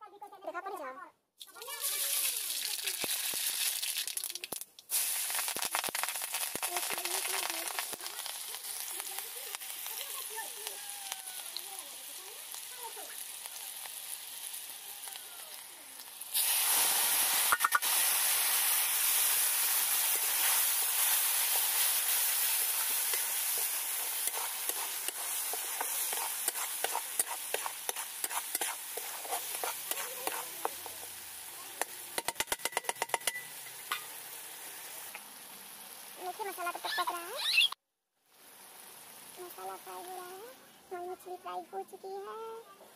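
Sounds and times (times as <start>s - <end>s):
paste sizzling in hot oil: 1.4s - 37.5s, 38.2s - 42.3s
spatula stirring and scraping: 19.0s - 34.2s
spatula tapping on pan: 31.8s - 34.1s.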